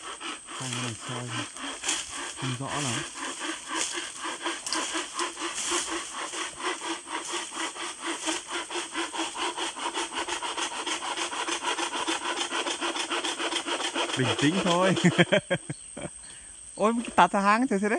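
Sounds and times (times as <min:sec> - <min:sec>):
hand saw cutting bamboo: 0:00.0 - 0:15.4.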